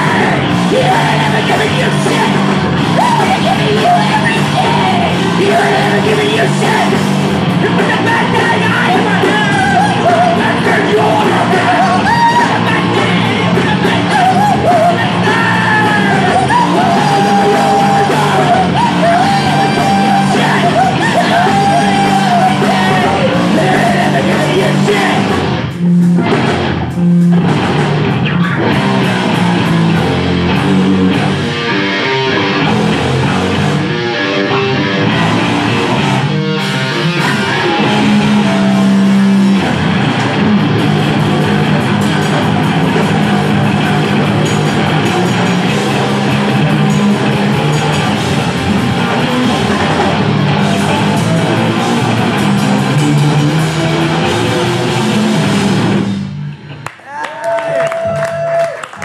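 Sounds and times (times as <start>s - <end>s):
person singing: 0.0s - 25.4s
rock band playing live: 0.0s - 59.0s.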